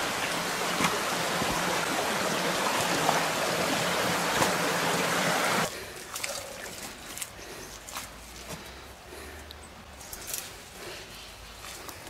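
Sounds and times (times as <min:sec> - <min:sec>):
footsteps wading in water: 0:00.0 - 0:05.0, 0:05.6 - 0:08.6
stream running over stones: 0:00.0 - 0:08.6.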